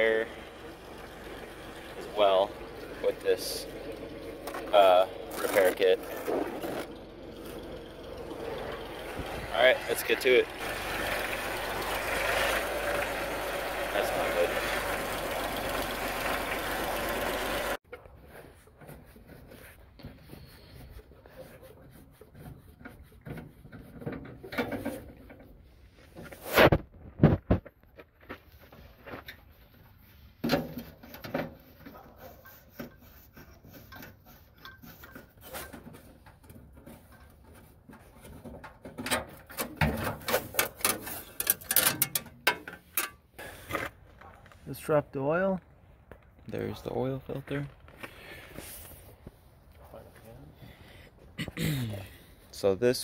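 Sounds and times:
tools clicking and knocking on engine: 0.0s - 18.1s, 30.4s - 43.5s.

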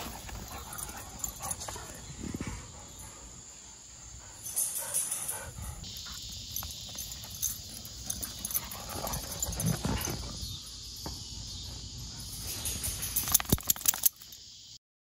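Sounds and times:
dogs scuffling and thumping: 0.0s - 2.6s, 6.2s - 11.2s.

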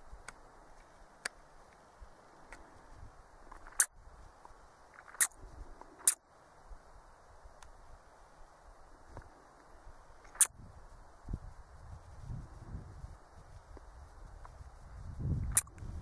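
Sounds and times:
faint outdoor background: 0.0s - 16.0s
predator call squeaks: 3.6s - 3.9s, 10.3s - 10.5s.

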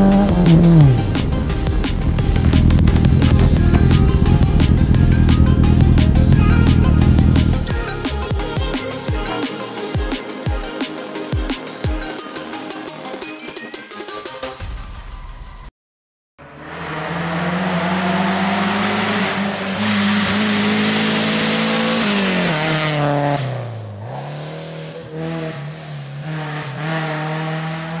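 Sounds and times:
racing car engine revving: 0.0s - 7.7s, 16.4s - 28.0s
music: 0.0s - 15.7s.

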